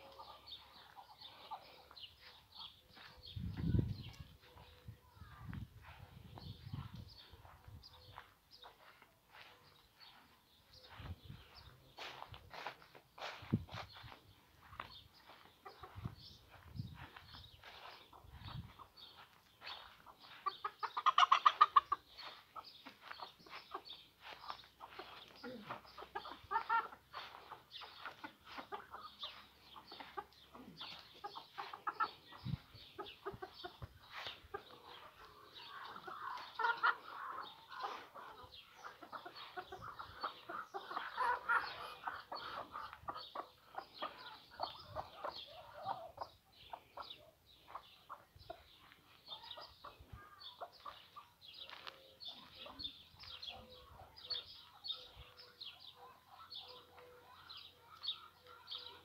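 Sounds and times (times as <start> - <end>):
chickens clucking: 0.0 - 59.0.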